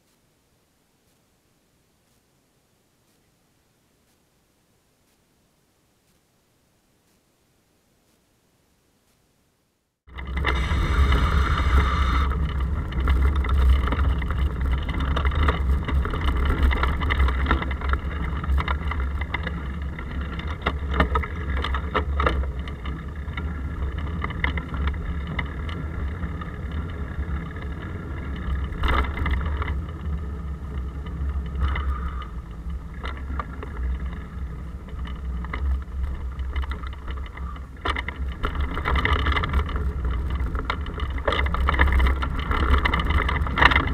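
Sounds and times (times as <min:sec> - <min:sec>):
wind and road vibration rumble: 0:10.1 - 0:43.9.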